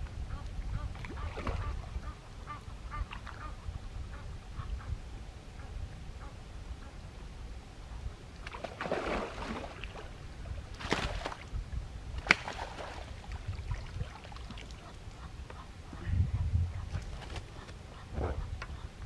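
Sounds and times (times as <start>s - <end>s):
fish splashing in water: 8.5s - 10.1s, 10.8s - 11.5s, 12.2s - 14.7s.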